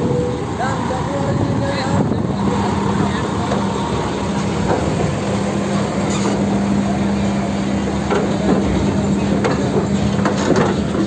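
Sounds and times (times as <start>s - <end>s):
diesel truck engine humming: 0.0s - 11.0s
clanks on steel grating: 6.0s - 6.4s.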